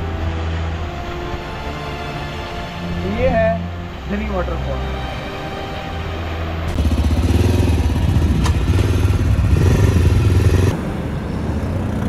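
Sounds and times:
motorcycle engine revving: 6.7 - 10.8.

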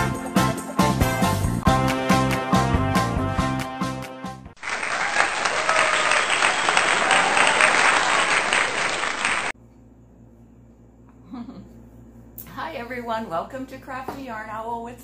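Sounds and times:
crowd applauding: 4.6 - 9.6.

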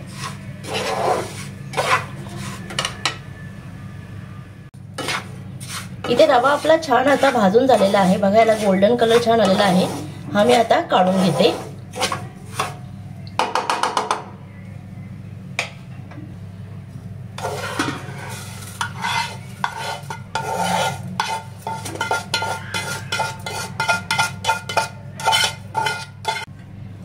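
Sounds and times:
wooden spatula scraping pan: 0.0 - 3.0, 5.0 - 12.9, 17.4 - 26.5
steady low hum: 14.1 - 27.0
scrapes and clinks on steel plate: 17.4 - 26.5.

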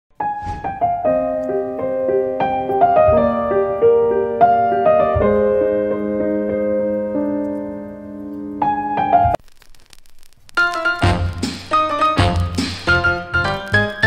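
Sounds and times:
soft piano music: 0.2 - 9.4.

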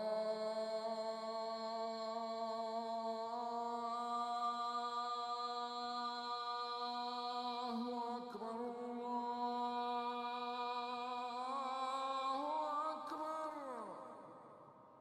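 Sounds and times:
person chanting: 0.0 - 14.7.

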